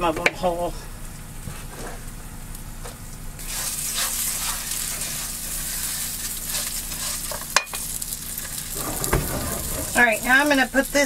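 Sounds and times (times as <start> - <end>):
food sizzling in pans: 3.4 - 11.0.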